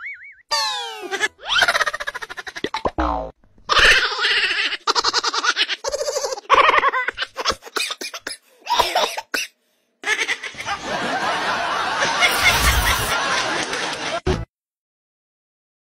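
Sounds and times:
person laughing and giggling: 0.8s - 2.8s, 3.7s - 7.8s, 11.9s - 14.3s.

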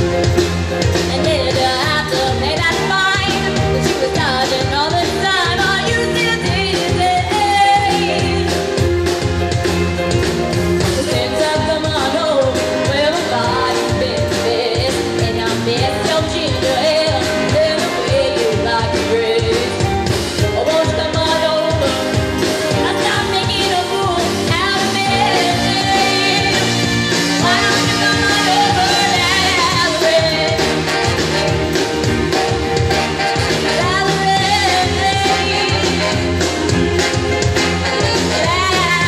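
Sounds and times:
live band playing upbeat music: 0.0s - 39.0s
person singing: 10.8s - 39.0s.

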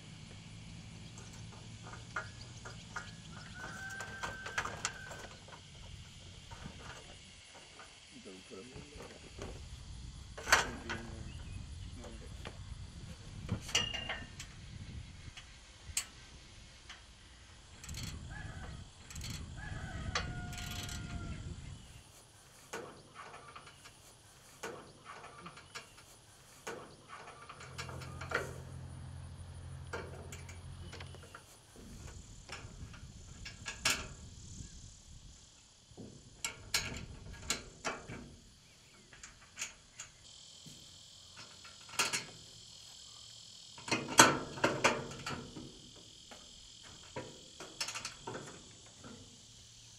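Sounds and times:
insects buzzing: 0.0s - 49.9s
steady low hum: 0.0s - 49.9s
metallic clicks and knocks: 1.1s - 8.0s, 13.5s - 14.5s, 17.7s - 21.1s, 22.6s - 28.7s, 29.8s - 34.2s, 36.0s - 40.2s, 41.4s - 42.5s, 43.8s - 49.3s
wind rumble: 8.8s - 22.1s, 31.8s - 35.4s.

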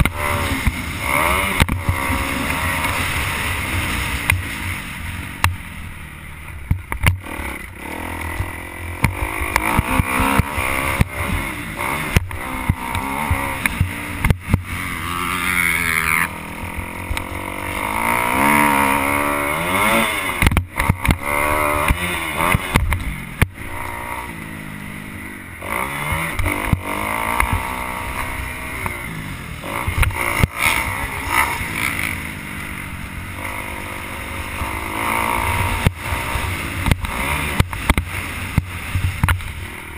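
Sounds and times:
motocross bike engine revving: 0.0s - 39.9s
wind rumble on microphone: 35.3s - 39.8s.

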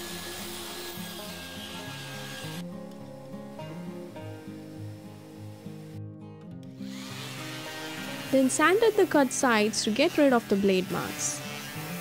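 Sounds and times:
background music: 0.0s - 12.0s
table saw ripping wood: 6.8s - 12.0s.

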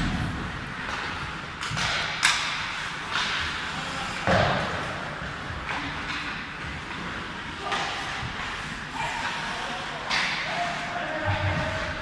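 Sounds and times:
hockey stick hitting puck: 0.0s - 3.5s, 4.2s - 5.0s.

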